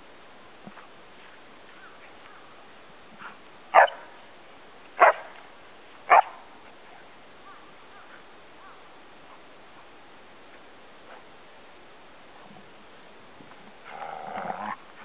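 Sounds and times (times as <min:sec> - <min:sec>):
dog barking: 0:03.8 - 0:04.0, 0:05.0 - 0:05.2, 0:06.1 - 0:06.4.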